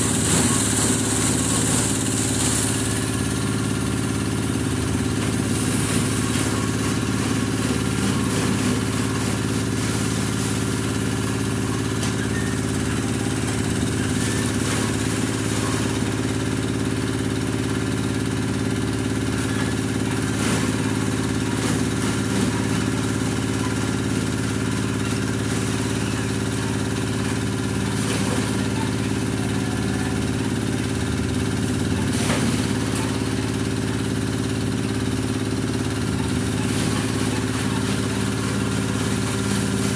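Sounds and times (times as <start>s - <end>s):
small engine running steadily: 0.0s - 39.9s.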